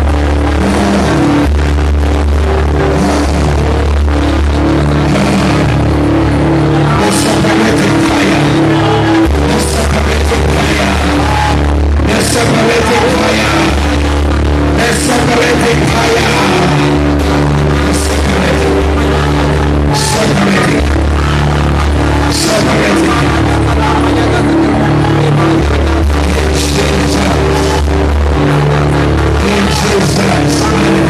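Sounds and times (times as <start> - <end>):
keyboard bass notes: 0.0 - 31.0
man singing into microphone: 6.8 - 21.4, 22.0 - 27.9, 29.3 - 31.0.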